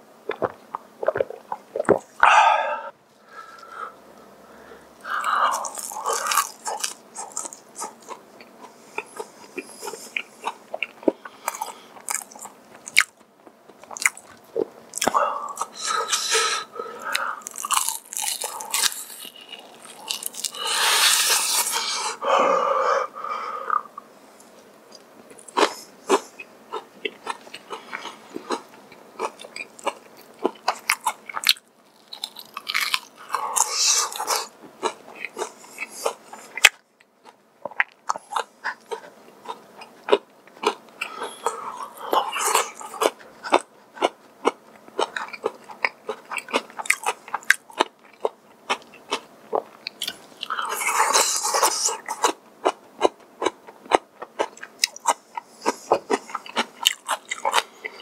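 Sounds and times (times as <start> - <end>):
crunching fried chicken: 5.2 - 9.2, 17.0 - 21.8, 27.1 - 58.0.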